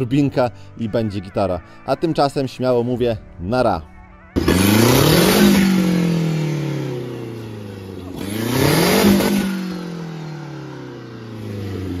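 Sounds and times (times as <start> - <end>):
diesel engine revving: 4.4 - 12.0.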